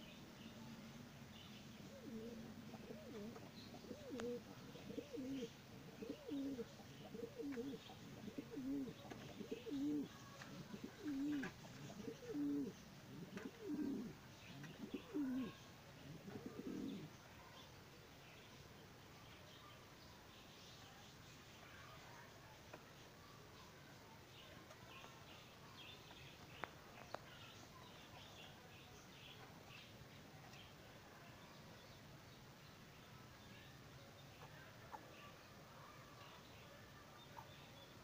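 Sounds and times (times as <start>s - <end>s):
pigeons cooing: 1.8s - 17.1s.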